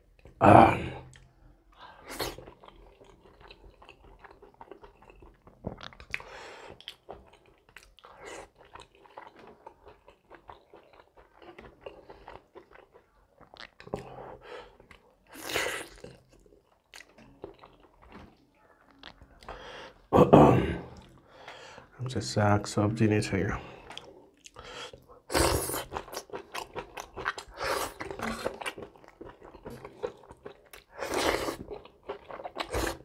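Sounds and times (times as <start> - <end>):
person chewing and crunching food: 1.0 - 20.1, 23.6 - 33.0.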